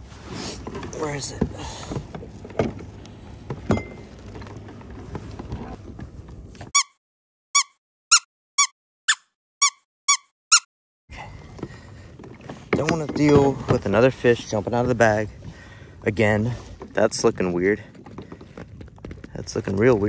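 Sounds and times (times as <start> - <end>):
squeaky toy squeaks: 6.7 - 7.0, 7.6 - 10.7.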